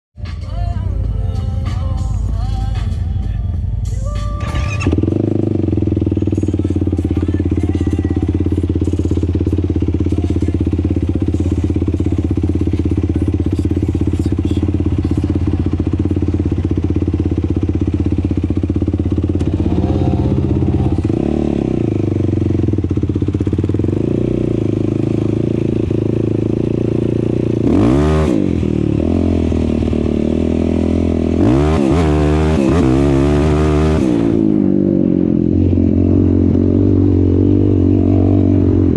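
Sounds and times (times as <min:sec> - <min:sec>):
off-road vehicle engine: 0:00.2 - 0:38.9.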